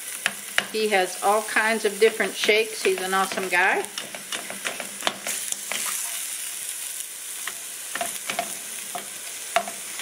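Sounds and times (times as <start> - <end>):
meat sizzling in a skillet: 0.0 - 10.0
spatula scraping and tapping pan: 0.1 - 0.9, 1.9 - 6.0, 7.4 - 10.0.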